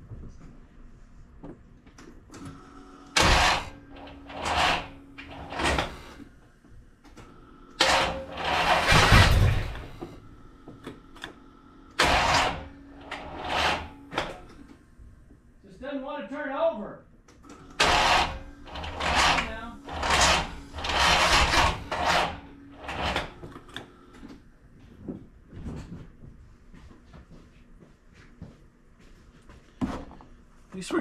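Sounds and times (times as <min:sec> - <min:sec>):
starter motor cranking: 0:02.4 - 0:06.2, 0:07.1 - 0:10.1, 0:10.9 - 0:14.5, 0:17.4 - 0:24.2.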